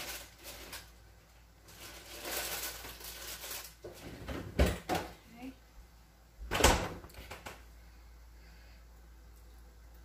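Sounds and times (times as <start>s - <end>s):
rustling and crinkling: 0.0s - 4.8s.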